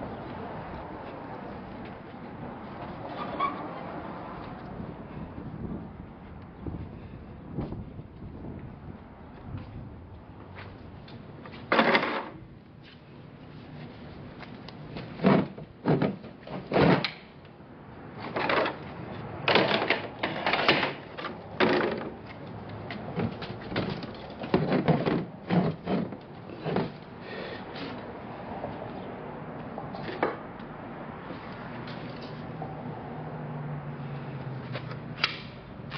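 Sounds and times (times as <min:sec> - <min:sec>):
plastic and metal clattering: 0:15.2 - 0:17.2, 0:19.5 - 0:22.2, 0:23.1 - 0:27.0.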